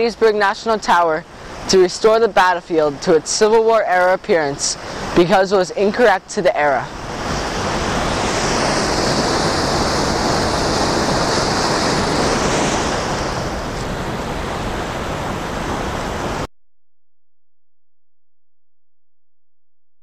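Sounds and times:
rush of falling water: 6.8 - 16.5.

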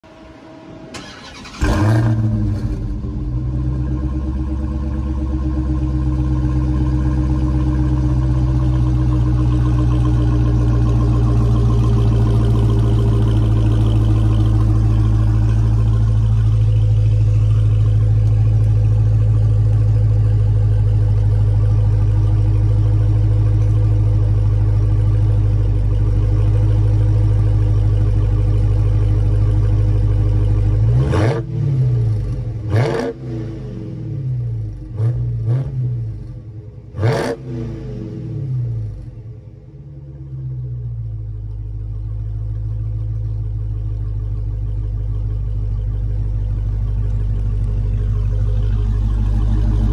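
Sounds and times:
engine revving: 1.0 - 4.0, 30.8 - 36.3, 36.9 - 38.9, 49.0 - 49.9
car exhaust idling: 1.0 - 49.9.

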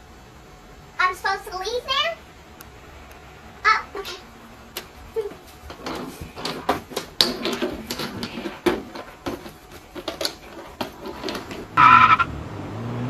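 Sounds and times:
wheeled backpack rattling on concrete: 4.8 - 11.8.

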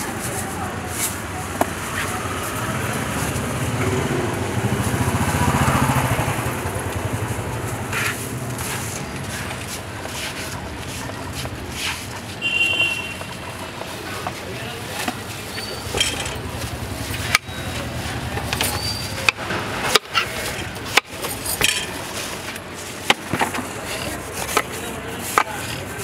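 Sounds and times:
vehicle engine passing by: 1.8 - 12.0.

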